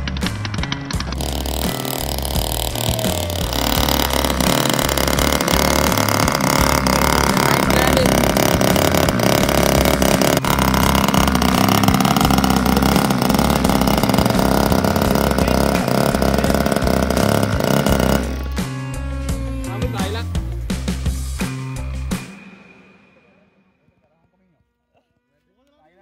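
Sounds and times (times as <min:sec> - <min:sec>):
model airplane engine running: 0:01.1 - 0:20.2.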